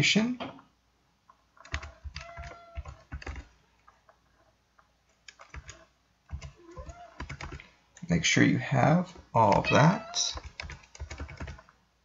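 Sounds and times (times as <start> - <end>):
typing on computer keyboard: 1.6 - 3.5, 5.2 - 7.7, 10.3 - 11.7.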